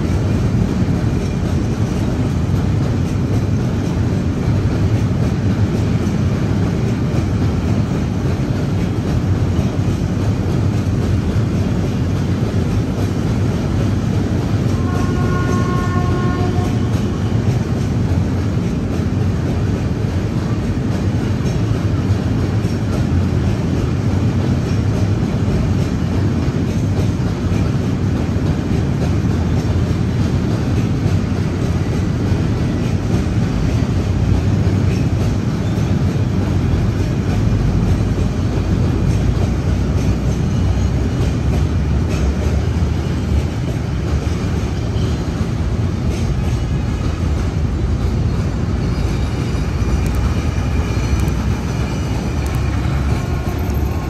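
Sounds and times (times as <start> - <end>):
freight wagons rolling on rails: 0.0 - 54.0.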